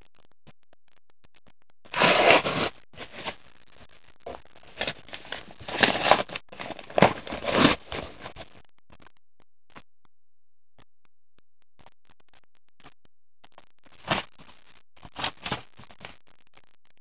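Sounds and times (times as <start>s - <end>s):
paper bag tearing: 1.9s - 3.3s, 4.8s - 8.2s
paper mailing bag crinkling: 1.9s - 3.3s, 4.7s - 8.4s.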